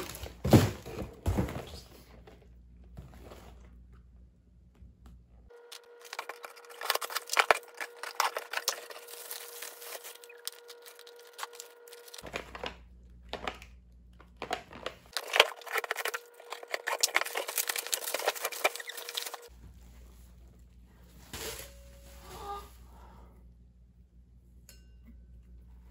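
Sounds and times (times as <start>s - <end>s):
packaging crinkling and tearing: 5.7s - 19.5s.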